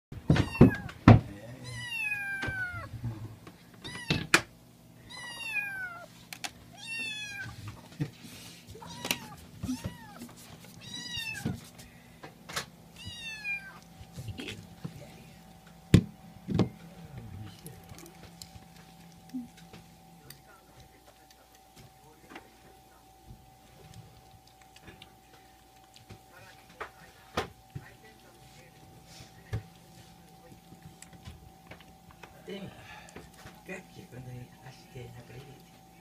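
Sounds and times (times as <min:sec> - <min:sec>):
kitten meowing: 0:00.3 - 0:01.0, 0:01.6 - 0:02.9, 0:03.8 - 0:04.4, 0:05.1 - 0:06.1, 0:06.7 - 0:07.6, 0:08.8 - 0:11.6, 0:13.0 - 0:13.9.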